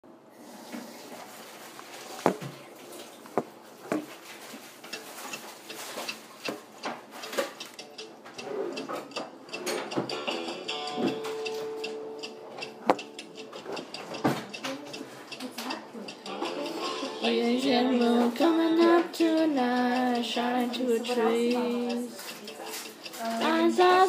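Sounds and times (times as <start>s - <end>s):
hand handling recording device: 1.7s - 2.6s, 3.2s - 6.6s.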